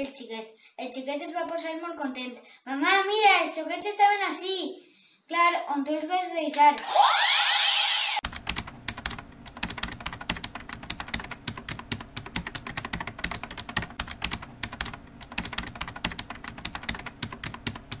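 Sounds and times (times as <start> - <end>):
keyboard typing: 8.2 - 18.0.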